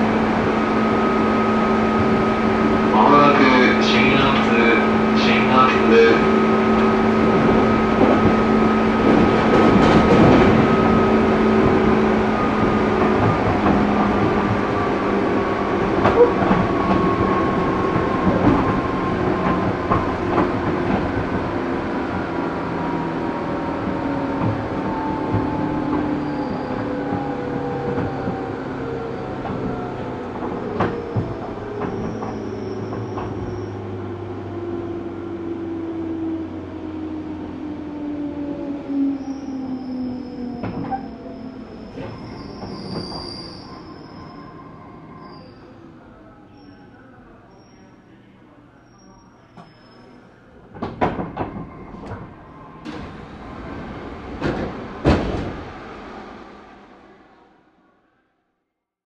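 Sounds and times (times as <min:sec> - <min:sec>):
rail-joint clacks: 0:09.0 - 0:10.9, 0:50.7 - 0:53.4.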